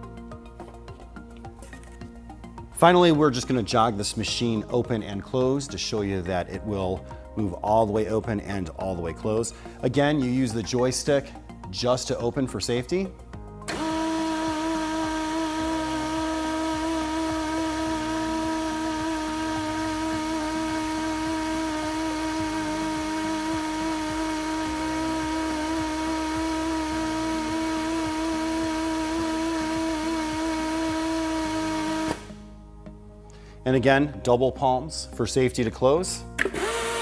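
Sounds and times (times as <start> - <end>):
air motor whining: 13.7 - 32.5, 36.4 - 37.0.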